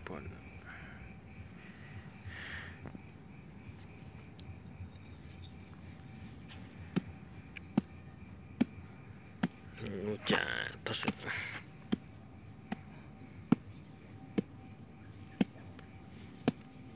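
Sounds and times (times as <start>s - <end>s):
crickets chirping: 0.0s - 16.9s
hand tool chopping into soil: 6.5s - 14.6s, 15.2s - 16.9s.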